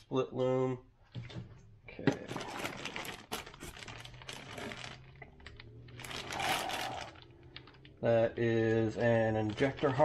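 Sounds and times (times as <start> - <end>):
packaging rustling: 2.2 - 10.0.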